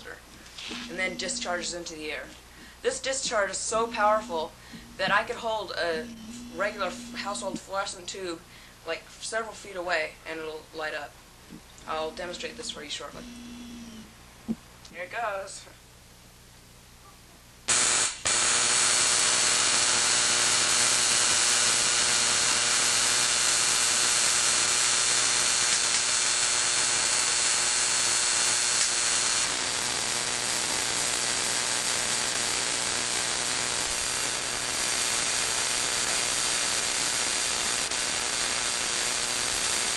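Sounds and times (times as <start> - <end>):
tesla coil sparks buzzing: 0.0 - 8.2, 11.5 - 14.2, 17.7 - 39.9
low electrical hum: 0.0 - 26.4.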